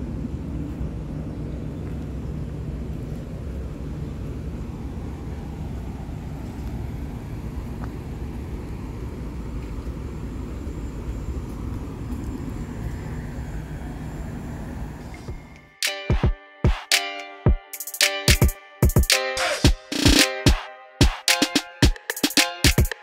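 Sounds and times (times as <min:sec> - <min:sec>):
road traffic rumble: 0:00.0 - 0:15.7.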